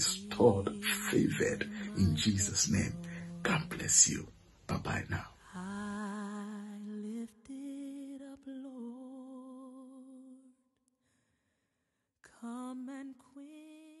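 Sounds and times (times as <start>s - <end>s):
person singing held notes: 0.0s - 3.7s.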